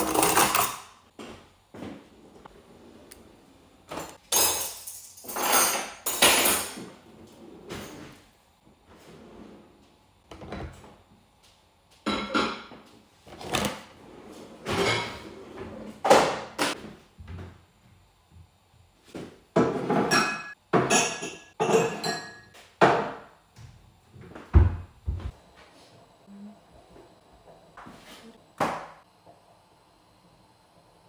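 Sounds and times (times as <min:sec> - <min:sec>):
dishes knocking and clinking: 0:12.0 - 0:12.8, 0:19.5 - 0:23.3
drawers and cupboard doors shutting: 0:13.3 - 0:16.8.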